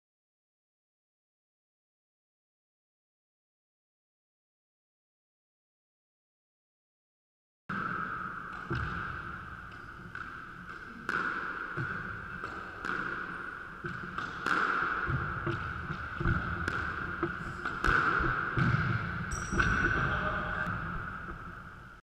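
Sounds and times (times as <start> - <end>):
squash ball hitting racket and walls: 7.7 - 22.0.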